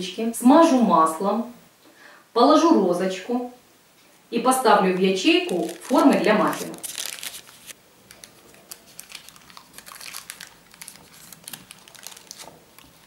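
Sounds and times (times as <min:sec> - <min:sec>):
parchment paper crinkling: 0:05.0 - 0:13.0.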